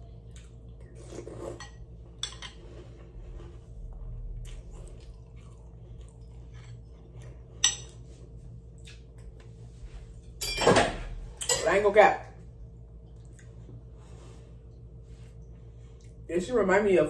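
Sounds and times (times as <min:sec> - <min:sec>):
chewing: 0:00.0 - 0:01.6, 0:02.5 - 0:08.1, 0:08.7 - 0:09.6
faint low hum: 0:00.0 - 0:17.0.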